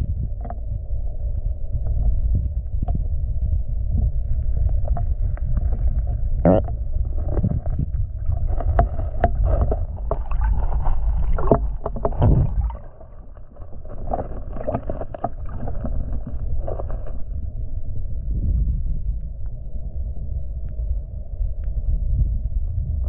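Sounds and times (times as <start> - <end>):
low underwater rumble: 0.0 - 23.0
underwater clicks and knocks: 0.3 - 0.7, 2.8 - 3.0, 4.0 - 17.4
bubbling gurgles: 4.1 - 17.6.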